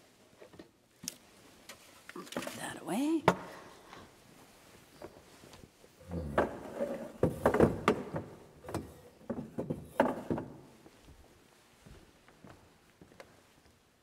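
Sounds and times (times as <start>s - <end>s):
objects clunking and knocking: 6.1s - 10.9s.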